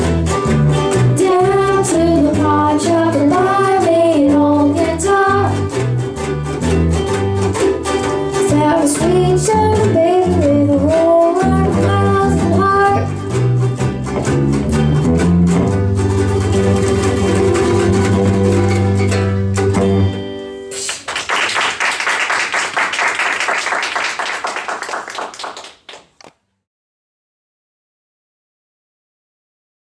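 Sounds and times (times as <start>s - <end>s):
guitars playing blues: 0.0s - 21.2s
girl singing: 1.1s - 5.7s, 8.4s - 13.2s
applause: 20.8s - 26.4s.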